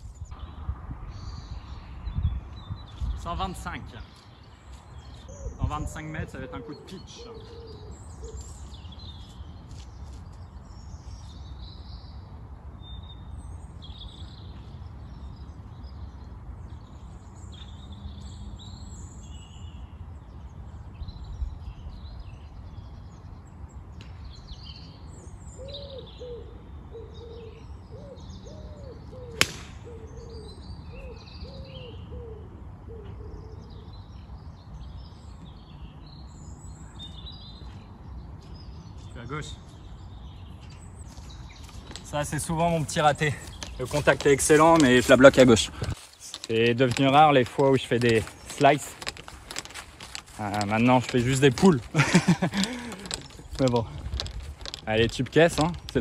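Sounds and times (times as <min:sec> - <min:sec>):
songbirds chirping: 0:00.0 - 0:56.0
bird cooing: 0:05.3 - 0:08.6, 0:25.6 - 0:33.9
golf club striking ball: 0:29.4 - 0:29.9.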